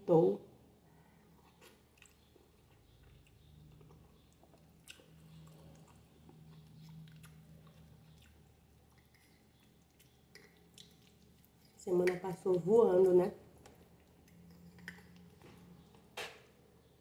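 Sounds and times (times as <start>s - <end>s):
faint low hum: 0.0s - 17.0s
faint chewing: 1.0s - 16.4s
wet mouth clicks: 2.0s - 12.2s.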